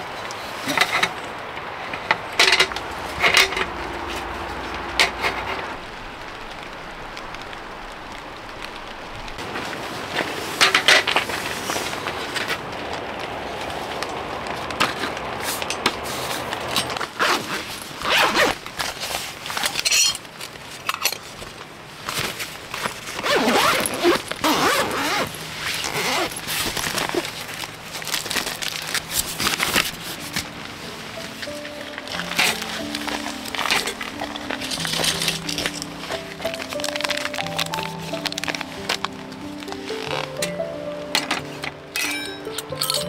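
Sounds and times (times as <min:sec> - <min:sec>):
fabric rustling: 0:00.0 - 0:42.8
rain hiss: 0:00.0 - 0:43.0
zippers rasping: 0:16.7 - 0:18.6, 0:23.2 - 0:27.3.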